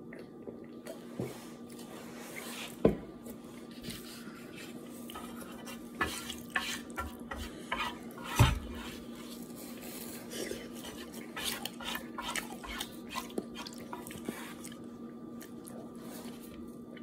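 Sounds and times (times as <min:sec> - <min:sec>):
chopsticks scraping frying pan: 0:05.2 - 0:09.0.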